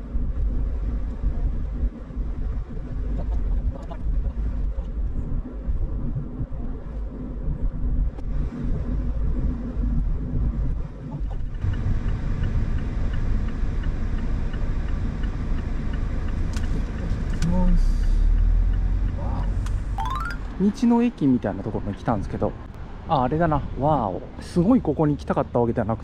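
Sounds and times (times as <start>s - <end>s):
car engine rumble: 0.0s - 26.0s
road noise: 0.0s - 26.0s
turn signal ticking: 7.0s - 23.3s.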